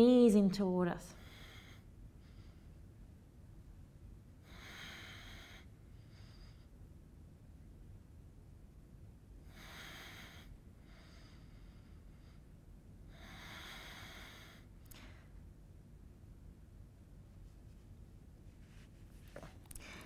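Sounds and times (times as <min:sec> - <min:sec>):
woman breathing: 0:04.4 - 0:06.9, 0:09.4 - 0:15.5, 0:19.4 - 0:20.0.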